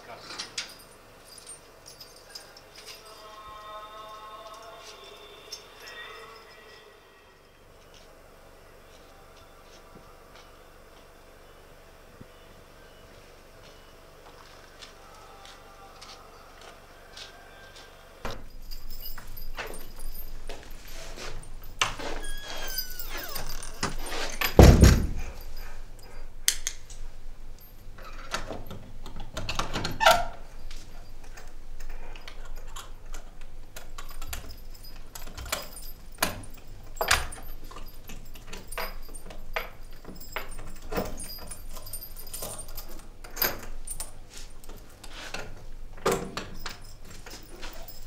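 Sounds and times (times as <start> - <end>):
keys jangling at a door: 0.0 - 6.8, 18.3 - 48.0
heavy thud: 24.6 - 25.4.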